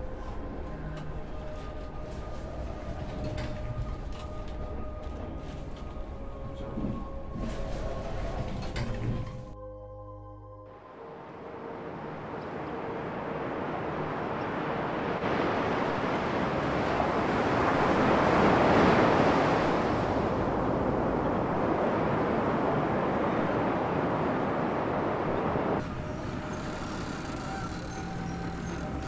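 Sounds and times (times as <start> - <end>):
wind: 0.0 - 9.6, 10.6 - 29.0
surf rushing: 11.8 - 29.0.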